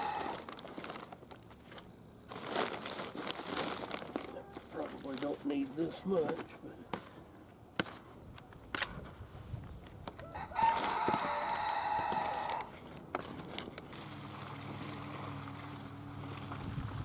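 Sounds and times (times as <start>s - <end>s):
rooster crowing: 0.0s - 0.4s, 10.2s - 12.7s.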